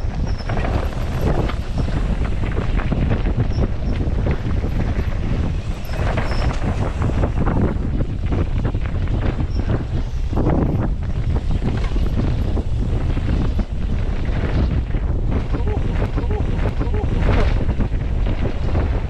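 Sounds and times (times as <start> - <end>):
bike knocking and rattling: 0.0 - 19.0
low rumble: 0.0 - 19.0
wind buffeting microphone: 0.0 - 19.0.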